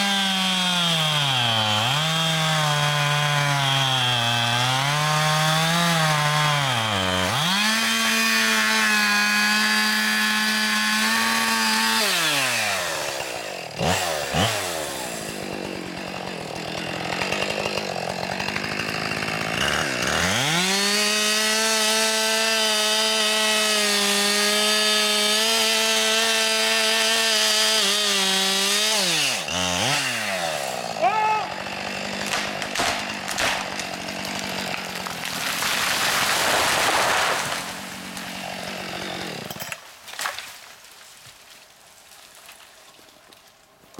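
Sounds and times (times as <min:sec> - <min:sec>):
chainsaw running: 0:00.0 - 0:40.4
tree trunk cracking: 0:00.1 - 0:22.3, 0:27.0 - 0:43.9
tree crashing through branches: 0:31.8 - 0:43.2.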